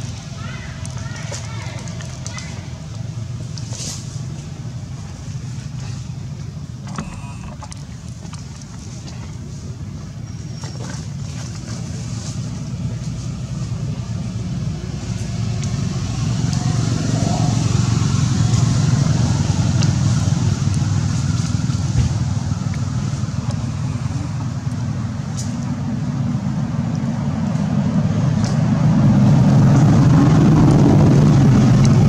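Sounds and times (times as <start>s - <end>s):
vehicle engine hum: 0.0s - 32.0s.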